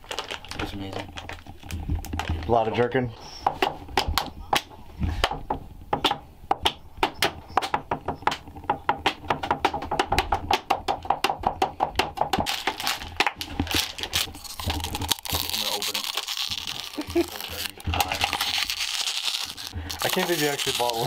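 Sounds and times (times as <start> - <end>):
rapid clicks and taps: 3.5 - 13.8.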